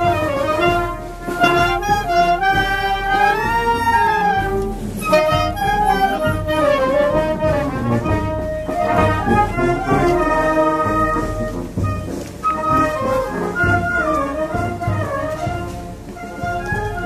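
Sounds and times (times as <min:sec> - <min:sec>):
wind band playing a melody: 0:00.0 - 0:17.0.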